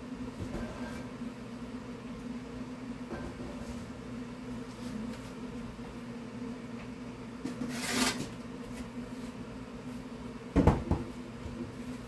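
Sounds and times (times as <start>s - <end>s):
steady low hum: 0.0s - 12.0s
scraping slide: 7.6s - 8.3s
cupboard door thumping shut: 10.6s - 11.0s.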